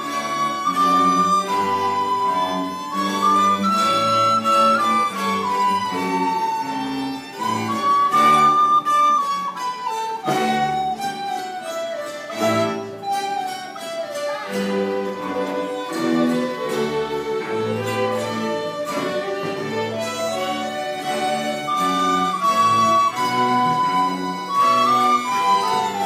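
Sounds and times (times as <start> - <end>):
folk orchestra playing: 0.0 - 26.0.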